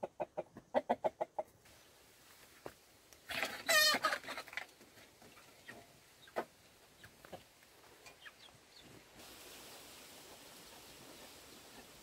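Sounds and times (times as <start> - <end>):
chicken clucking: 0.0 - 1.6, 3.3 - 9.0
faint outdoor hiss: 0.0 - 12.0.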